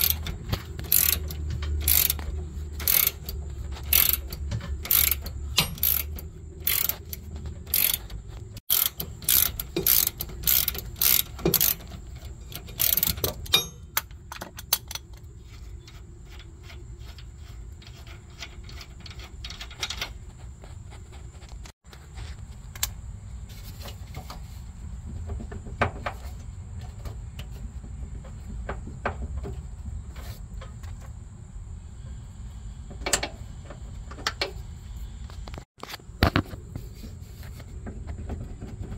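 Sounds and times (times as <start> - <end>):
ratchet wrench clicking: 0.0 - 15.1.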